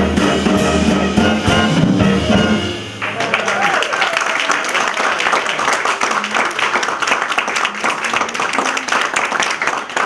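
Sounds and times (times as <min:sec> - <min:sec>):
audience clapping: 0:03.0 - 0:10.0.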